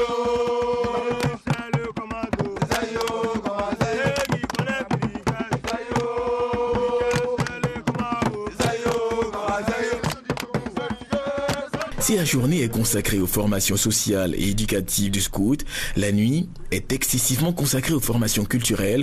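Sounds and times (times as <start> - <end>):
quick steady drum strokes: 0.0 - 12.5
chant-like singing: 0.0 - 13.0.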